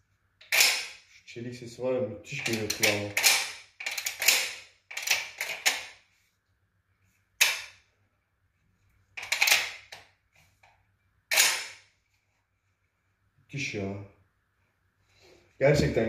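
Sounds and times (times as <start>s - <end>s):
rattle of clicks: 2.4s - 5.9s.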